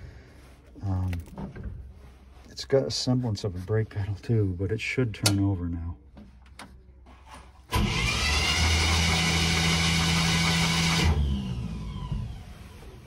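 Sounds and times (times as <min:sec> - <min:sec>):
engine cranked by starter: 0:07.7 - 0:12.5.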